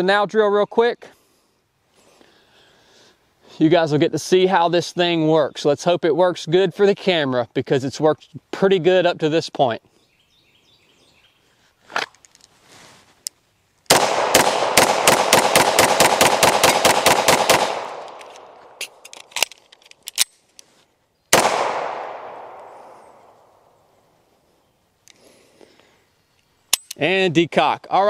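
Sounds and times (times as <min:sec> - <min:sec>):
pistol shots: 0:13.9 - 0:19.0, 0:21.3 - 0:23.6
magazine change clicks: 0:13.9 - 0:20.7, 0:21.3 - 0:23.3, 0:26.7 - 0:27.0.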